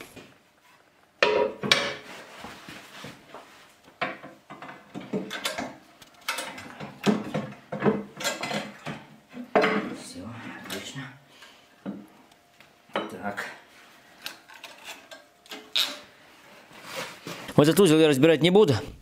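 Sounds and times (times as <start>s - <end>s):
metal clanks and knocks: 4.0s - 10.0s.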